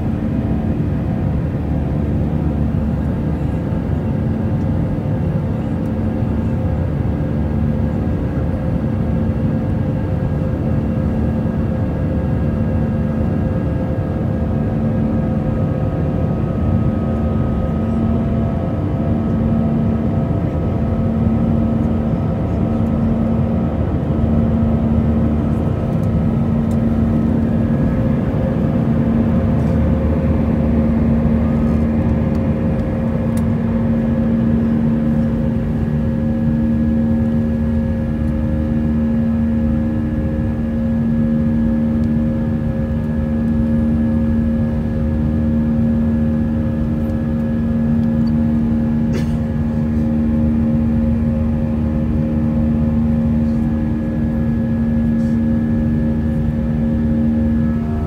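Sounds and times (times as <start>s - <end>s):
jet engine drone in cabin: 0.0s - 58.0s
humming tones: 23.9s - 58.0s.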